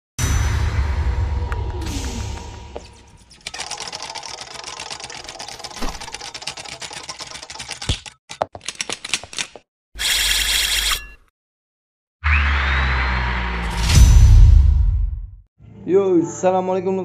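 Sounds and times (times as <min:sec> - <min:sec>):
rapid typewriter-like clicks: 0:03.4 - 0:10.8.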